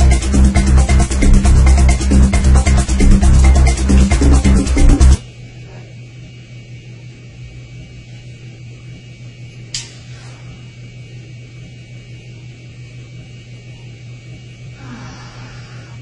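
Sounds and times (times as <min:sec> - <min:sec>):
low hum with hiss: 0:00.0 - 0:16.0
sharp click: 0:09.7 - 0:10.0.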